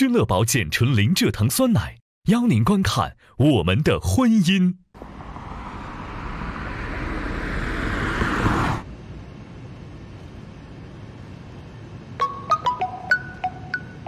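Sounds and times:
car driving past: 5.0 - 8.9
chime-like music notes: 12.2 - 14.0.

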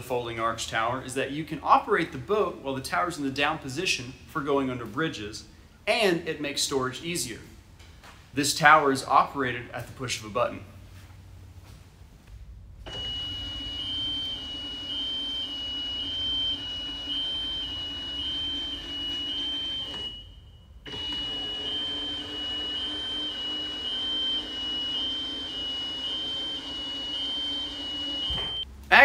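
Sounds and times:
actuator motor humming: 12.8 - 28.9
two-pitch warning tone: 12.9 - 28.7.

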